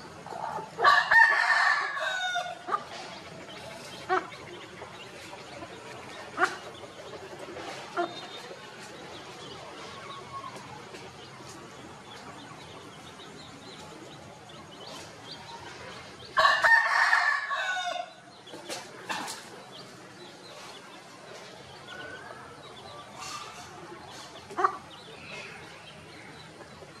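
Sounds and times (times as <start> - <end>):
rooster crowing: 16.4 - 18.1.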